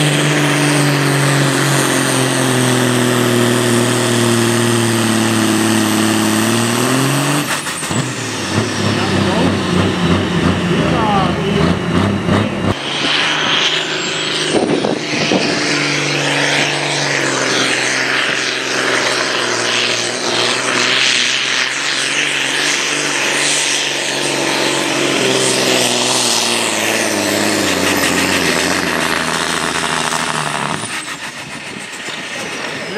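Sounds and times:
tractor diesel engine under load: 0.0s - 32.9s
thin high whine: 12.7s - 32.9s.

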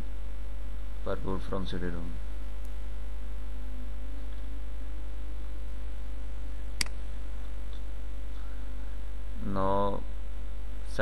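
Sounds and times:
low electrical mains hum: 0.0s - 11.0s
sharp click: 6.8s - 7.0s.

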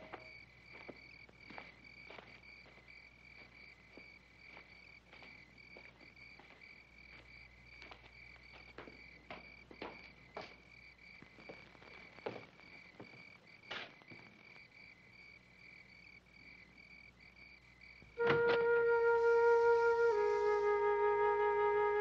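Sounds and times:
slow footsteps: 0.0s - 14.7s
crickets chirping: 0.0s - 22.0s.

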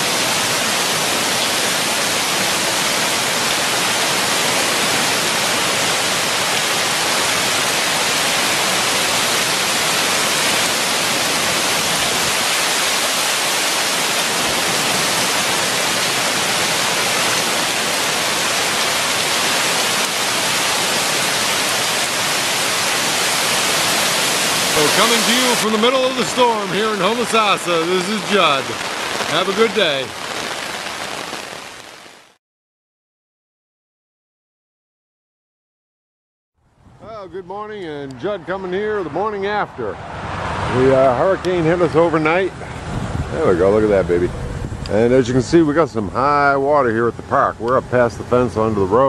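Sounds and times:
heavy rain on pavement: 0.0s - 32.4s.

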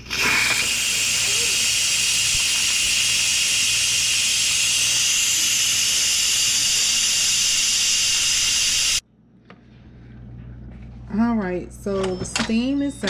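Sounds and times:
pressure cooker steam hissing: 0.0s - 9.0s.

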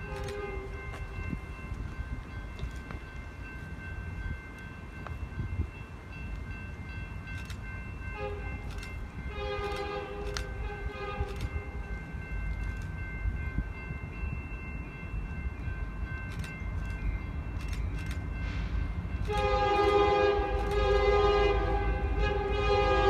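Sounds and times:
distant locomotive air horn: 0.0s - 0.8s, 8.1s - 11.8s, 18.4s - 23.0s
steady high ringing tones: 0.0s - 23.0s.

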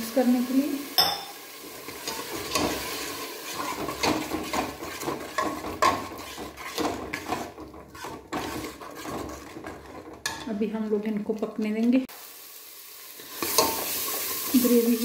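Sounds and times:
spoon scraping metal pot: 1.0s - 11.3s.

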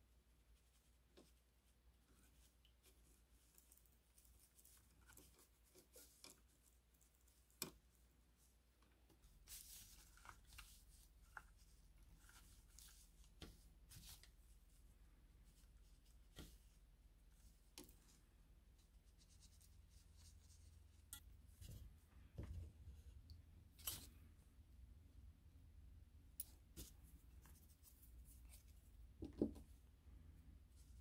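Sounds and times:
small scratches and clicks: 0.6s - 8.1s.

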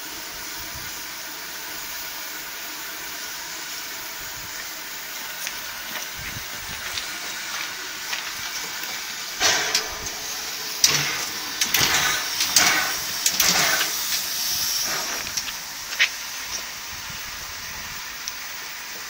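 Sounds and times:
steam locomotive hissing: 0.0s - 19.0s
steam puffs: 0.0s - 19.0s.

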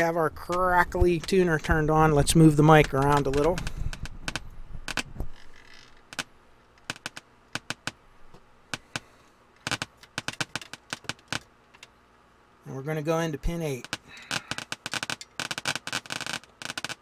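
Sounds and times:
speaker crackling and popping: 0.0s - 12.0s, 13.0s - 17.0s.

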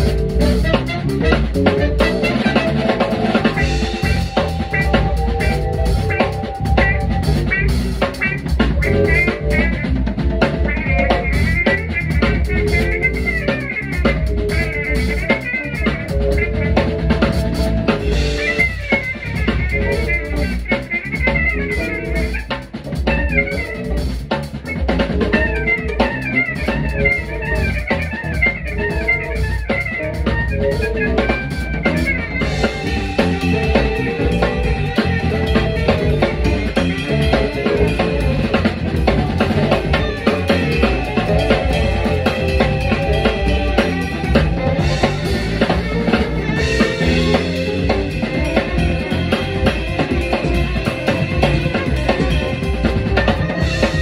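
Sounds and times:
drum kit: 0.0s - 54.0s
electric bass: 0.0s - 54.0s
electric guitar: 0.0s - 54.0s
horn lines: 0.0s - 54.0s
keyboards: 0.0s - 54.0s.

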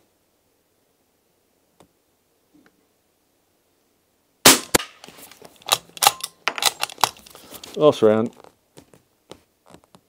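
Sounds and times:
suppressed gunshot: 4.4s - 5.0s.

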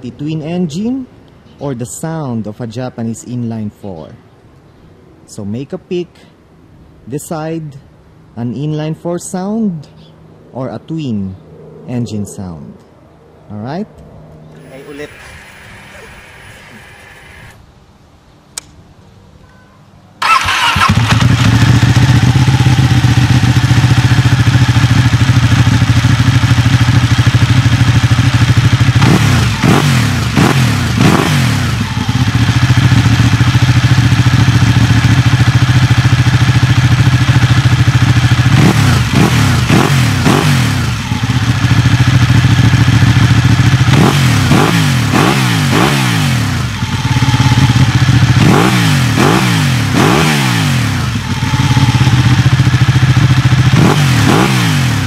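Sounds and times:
motorcycle engine idling and revving: 20.2s - 55.0s.

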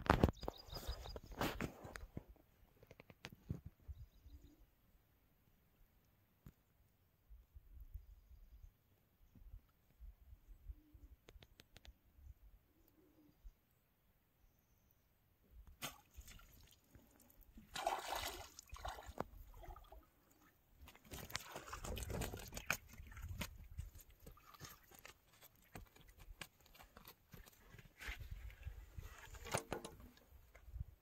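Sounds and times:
water splashing: 15.8s - 25.8s.

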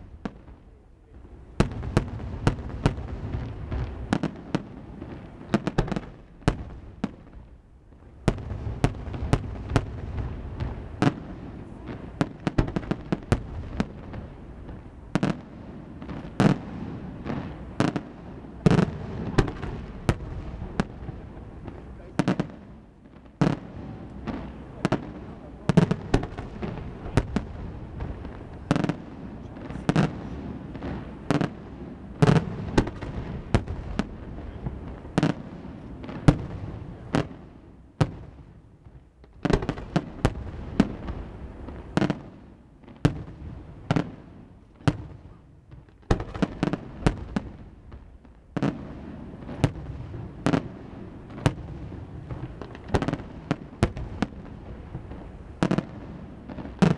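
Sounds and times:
fireworks bangs: 0.0s - 7.5s, 8.2s - 56.9s.

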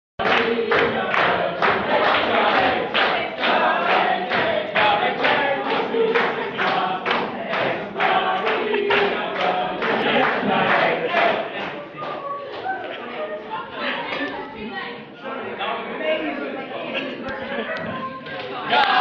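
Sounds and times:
children singing in unison: 0.2s - 12.4s.

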